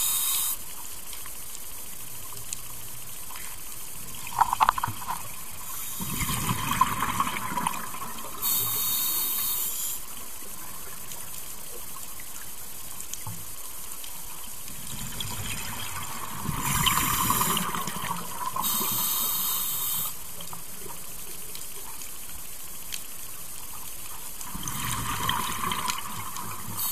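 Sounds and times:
regulator inhalation hiss: 0.0 - 0.7, 5.6 - 6.3, 8.4 - 10.2, 16.6 - 17.8, 18.6 - 20.3, 26.6 - 26.9.

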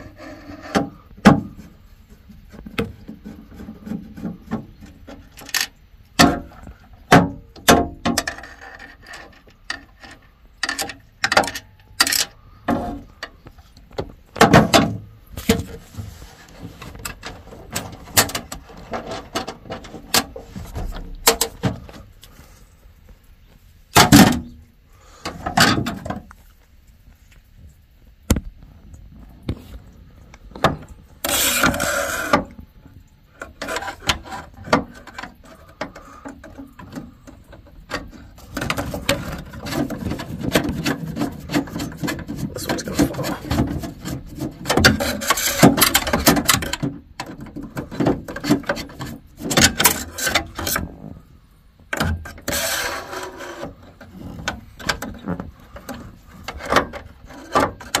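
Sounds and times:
rapid clicking and rubbing: 29.5 - 51.1, 52.0 - 58.0.

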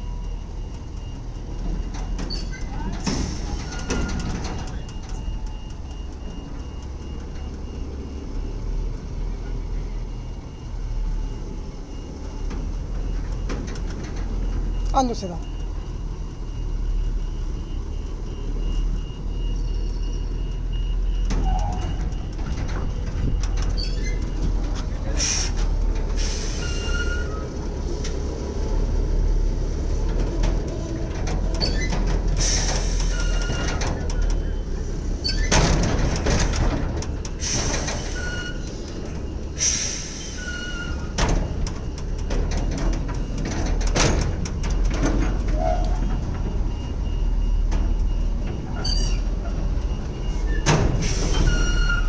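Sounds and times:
truck diesel engine rumbling: 0.0 - 52.0
faint high beeps: 14.4 - 23.6.

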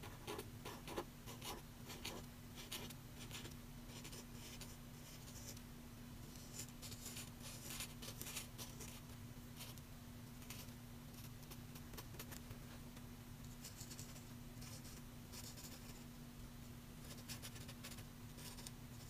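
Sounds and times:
felt-tip pen scratching paper: 17.0 - 18.7.

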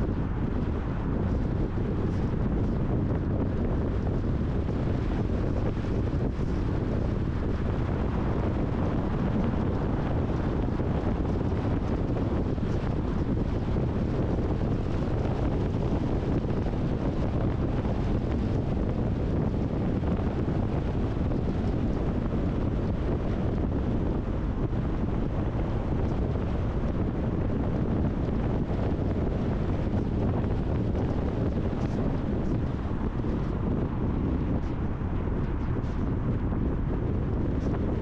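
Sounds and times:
car road and wind noise: 0.0 - 38.0
wind buffeting microphone: 0.0 - 38.0.

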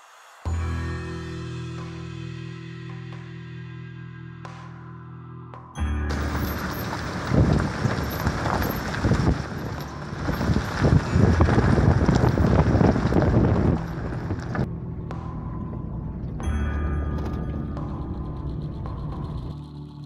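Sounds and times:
low engine hum: 5.8 - 19.9
vehicle thumps and jolts: 6.1 - 14.7
wind buffeting microphone: 6.1 - 16.5.

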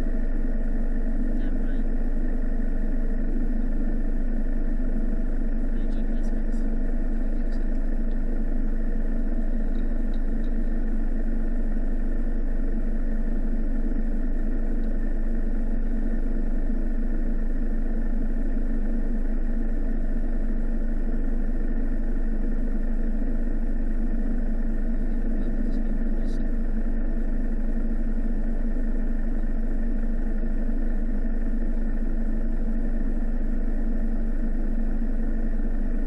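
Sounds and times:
diesel engine idling: 0.0 - 36.0.

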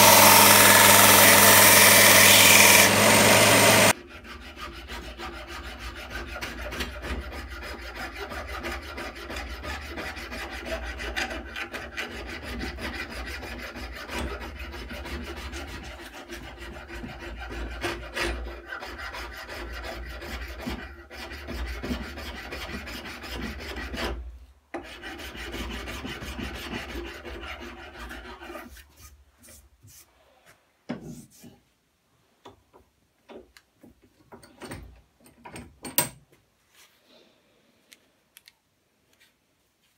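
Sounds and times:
file rasping on wood: 0.0 - 24.2, 24.8 - 29.1.

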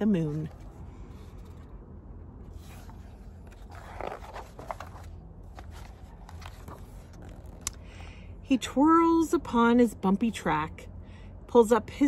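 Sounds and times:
low steady hum: 0.0 - 12.0
paper page scraping: 2.4 - 7.6.

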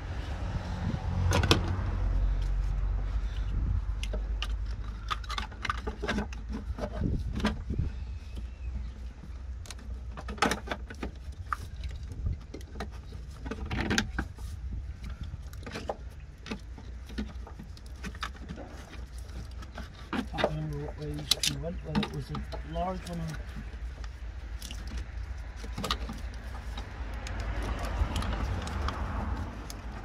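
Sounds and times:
tools and parts clinking: 4.0 - 7.7.

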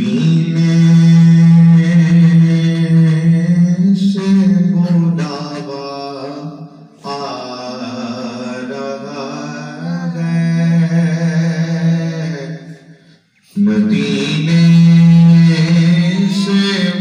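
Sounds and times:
man singing into a microphone: 0.0 - 17.0.

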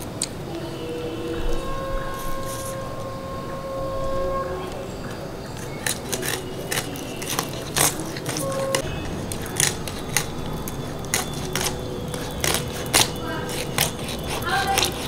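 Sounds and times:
fish cut on blade crackling: 5.6 - 15.0.

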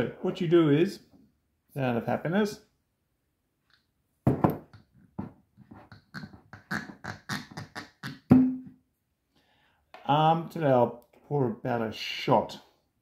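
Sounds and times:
cork squeaking in bottle: 5.9 - 8.3
cork popping out: 5.9 - 8.7.

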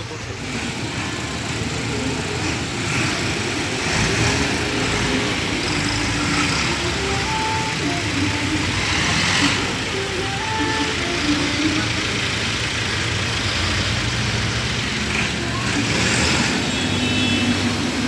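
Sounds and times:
tractor engines running: 0.0 - 18.0.

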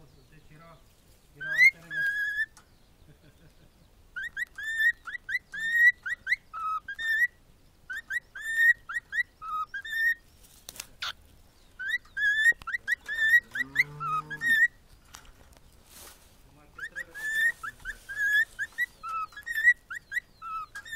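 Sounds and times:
cockatiel whistling a tune: 4.2 - 7.3, 7.9 - 10.2, 16.8 - 20.9.

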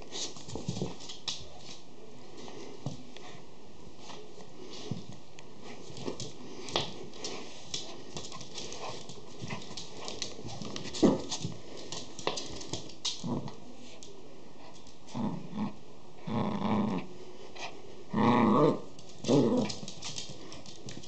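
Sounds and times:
claws and paws tapping on wooden floor: 0.1 - 1.8, 4.9 - 15.0, 19.0 - 21.0.

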